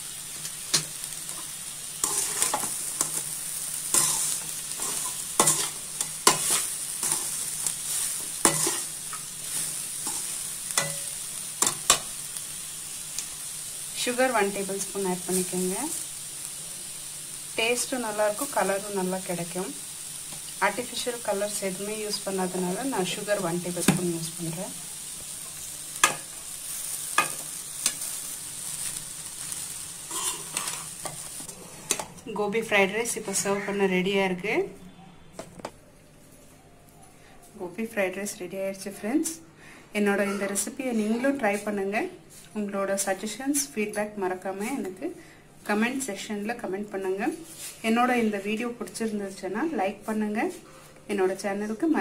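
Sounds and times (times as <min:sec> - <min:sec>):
food sizzling in oil: 0:00.0 - 0:34.7, 0:40.2 - 0:52.0
metal spoon scraping a pan: 0:00.4 - 0:12.2, 0:28.9 - 0:32.2, 0:33.1 - 0:33.8.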